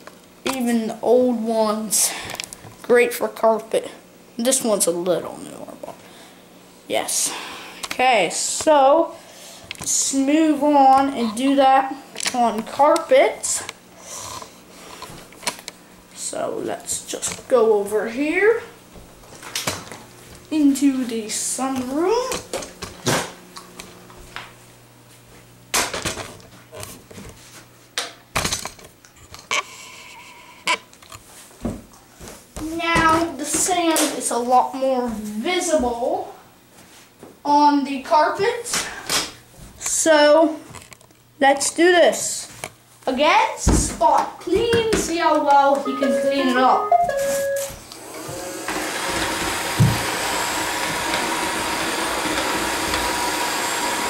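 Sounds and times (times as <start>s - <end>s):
robot vacuum motor whine: 48.0s - 54.0s.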